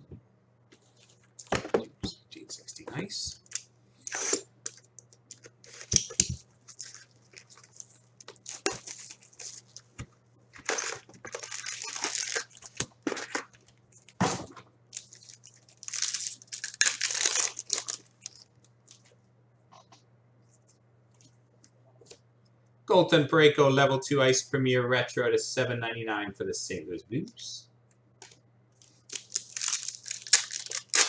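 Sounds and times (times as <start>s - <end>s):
card packs tearing and crinkling: 6.7s - 9.9s, 10.6s - 14.1s, 15.0s - 18.5s, 29.1s - 31.0s.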